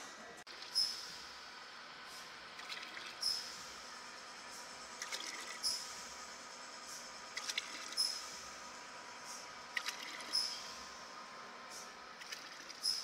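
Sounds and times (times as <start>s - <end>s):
sharp machine clicks: 6.8s - 8.6s, 9.2s - 11.0s, 11.7s - 13.0s.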